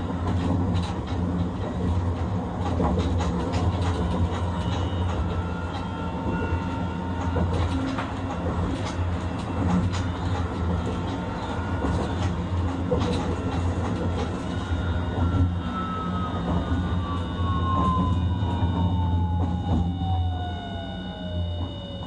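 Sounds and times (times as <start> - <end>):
tram wheels rumbling on rail: 0.0 - 22.0.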